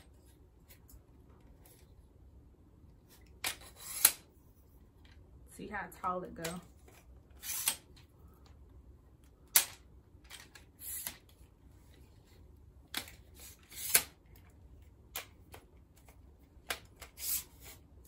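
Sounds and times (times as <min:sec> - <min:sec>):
telescoping stand clicks and scrapes: 0:03.4 - 0:04.3, 0:07.3 - 0:07.9, 0:12.9 - 0:14.2.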